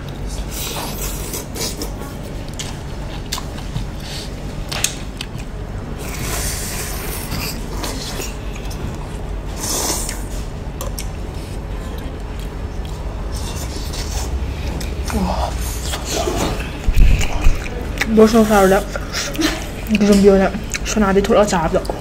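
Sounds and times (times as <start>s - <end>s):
chewing and slurping: 5.1s - 19.9s.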